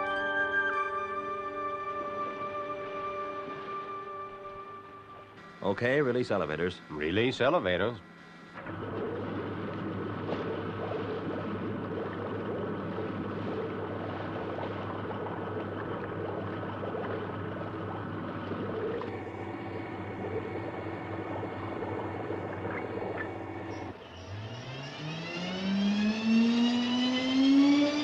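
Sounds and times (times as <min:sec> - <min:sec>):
water churning and bubbling: 0:01.0 - 0:06.8, 0:08.1 - 0:24.1
steady mechanical hum: 0:01.9 - 0:28.0.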